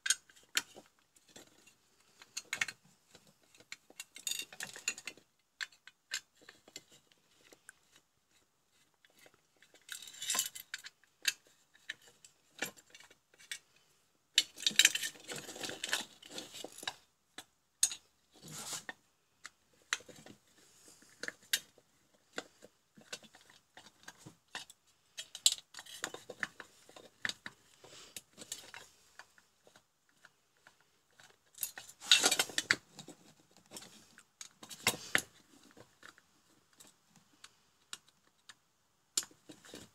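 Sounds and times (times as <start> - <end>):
metal parts clattering: 3.6 - 5.8, 14.4 - 17.0, 31.2 - 32.8
screwdriver clicks and metal clinks: 3.6 - 6.3, 17.8 - 18.0, 31.2 - 32.8.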